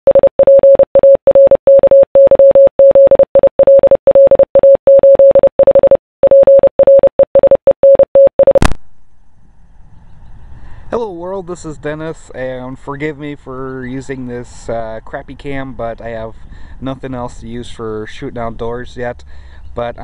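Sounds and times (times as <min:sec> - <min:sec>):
morse code beeps: 0:00.1 - 0:08.7.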